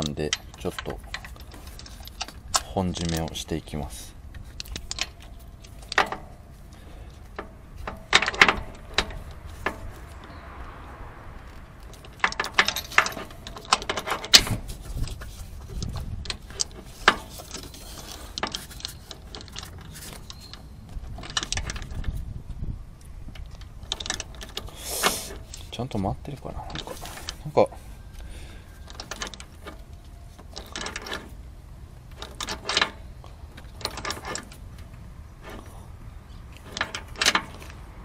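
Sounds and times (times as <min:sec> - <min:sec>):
metal tool clatter: 0:11.9 - 0:22.0.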